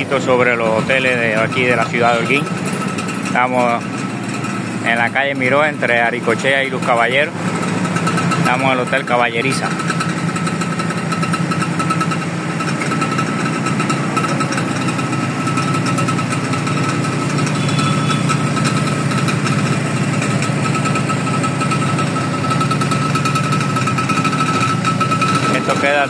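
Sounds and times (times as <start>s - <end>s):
small engine running with whine: 0.0s - 26.0s.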